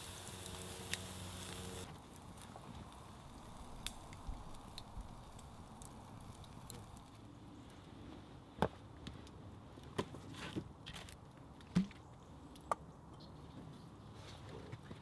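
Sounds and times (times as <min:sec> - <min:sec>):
steaks sizzling with hiss: 0:00.0 - 0:07.1
campfire crackling: 0:00.0 - 0:08.0.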